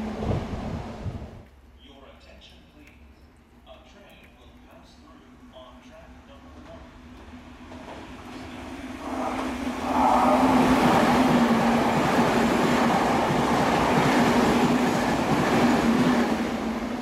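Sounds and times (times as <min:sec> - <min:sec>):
electric train passing: 0:00.0 - 0:01.4, 0:05.5 - 0:17.0.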